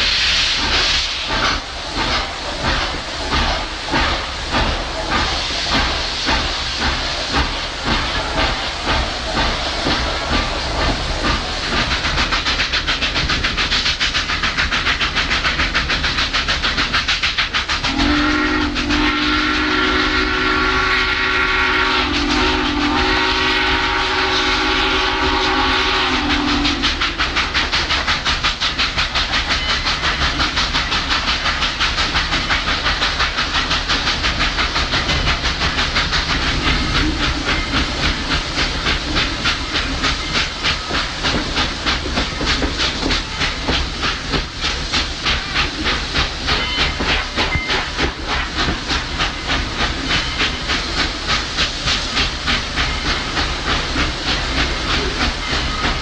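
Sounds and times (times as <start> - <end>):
steam locomotive exhaust beating: 0.0 - 56.0
steam whistle blast: 17.9 - 27.0.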